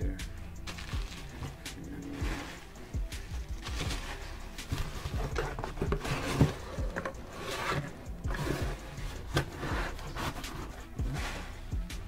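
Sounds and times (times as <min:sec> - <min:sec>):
bubble wrap crinkling: 0:00.6 - 0:06.8.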